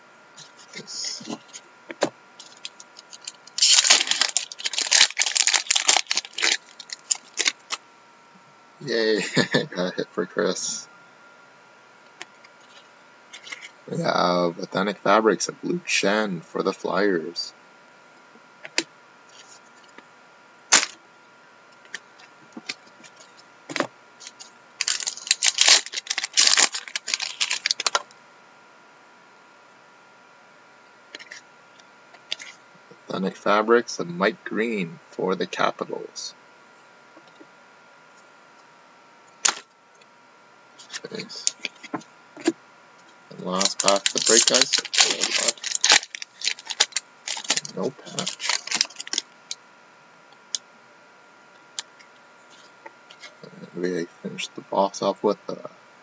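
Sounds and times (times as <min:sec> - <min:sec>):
foil wrapper tearing and crinkling: 0:02.4 - 0:07.8, 0:20.7 - 0:21.0, 0:24.2 - 0:28.0, 0:39.4 - 0:39.7, 0:43.5 - 0:49.3.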